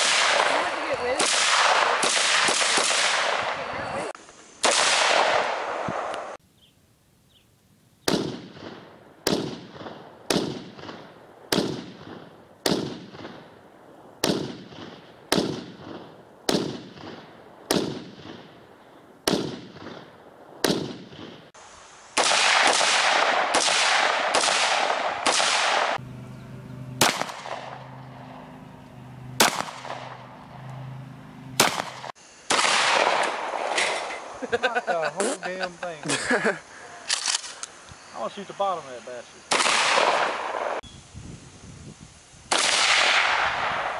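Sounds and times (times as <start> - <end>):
rifle shots echoing: 0.0 - 3.7, 4.6 - 6.4, 8.1 - 13.6, 14.2 - 21.5, 22.2 - 26.0, 27.0 - 30.7, 31.5 - 34.1, 39.5 - 40.8, 42.5 - 43.9
loud rushing noise: 25.8 - 32.2.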